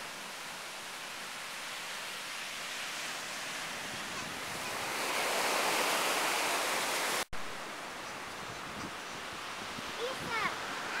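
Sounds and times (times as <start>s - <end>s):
surf breaking on beach: 2.6s - 7.3s.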